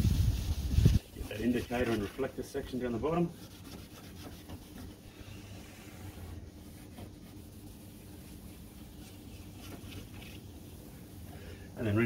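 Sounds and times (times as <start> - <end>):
sandpaper rubbing on plastic: 0.0 - 5.1, 6.6 - 10.5.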